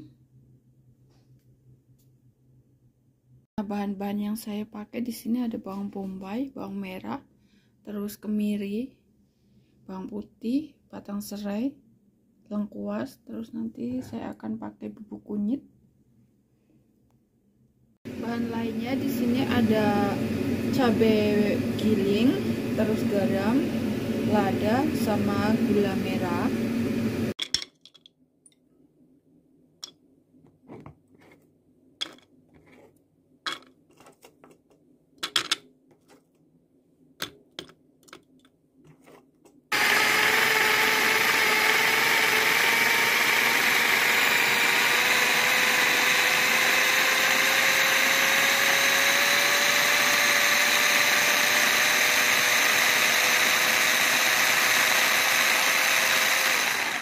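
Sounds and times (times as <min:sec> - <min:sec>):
electric food chopper whining: 0:18.1 - 0:27.3, 0:39.7 - 0:57.0.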